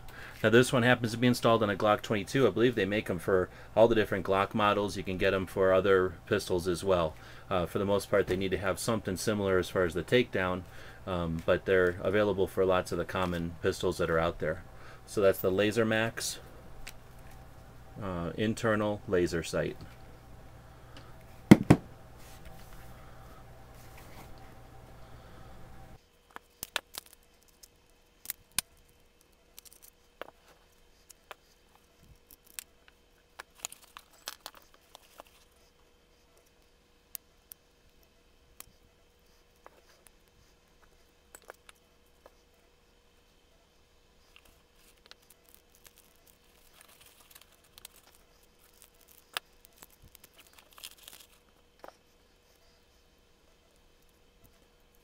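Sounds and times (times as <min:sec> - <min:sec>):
faint steady hum: 0:00.0 - 0:55.0
plastic bag crinkling: 0:33.4 - 0:35.5, 0:44.3 - 0:51.5.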